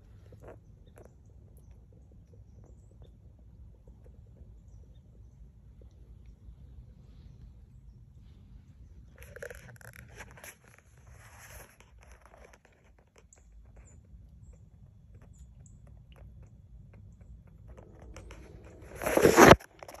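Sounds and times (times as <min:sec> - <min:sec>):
loud rustling and rubbing: 0:09.2 - 0:13.0, 0:17.8 - 0:20.0.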